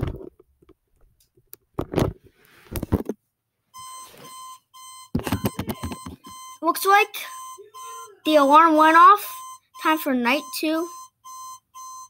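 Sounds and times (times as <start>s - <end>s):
alarm clock beeping: 3.8s - 12.0s
handling noise: 5.2s - 6.4s.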